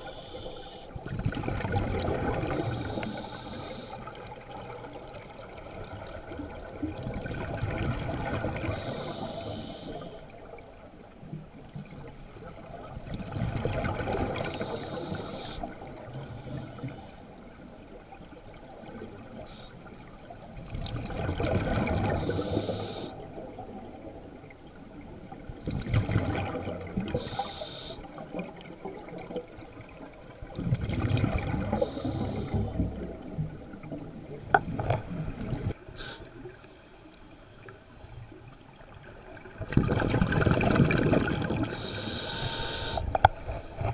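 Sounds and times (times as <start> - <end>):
regulator inhale hiss: 0.0 - 1.0, 2.5 - 4.2, 8.6 - 10.3, 14.4 - 17.2, 19.4 - 19.9, 22.1 - 23.2, 27.1 - 28.2, 31.7 - 32.7, 35.9 - 37.1, 41.7 - 43.9
exhaled bubbles rushing: 1.0 - 3.0, 4.0 - 8.9, 12.6 - 14.8, 20.6 - 22.6, 25.6 - 27.2, 28.3 - 35.8, 39.2 - 41.8.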